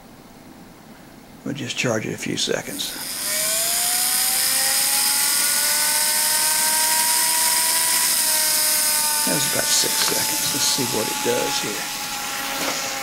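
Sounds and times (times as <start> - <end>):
tiny electric motor whining: 3.0 - 13.0.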